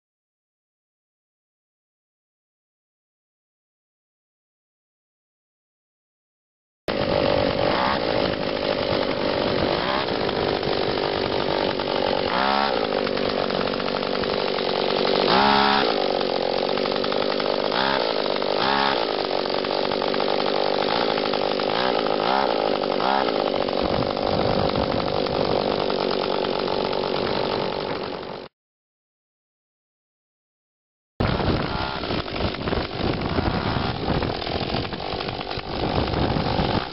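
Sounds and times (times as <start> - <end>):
two-stroke engine revving: 6.9 - 28.5, 31.2 - 36.9.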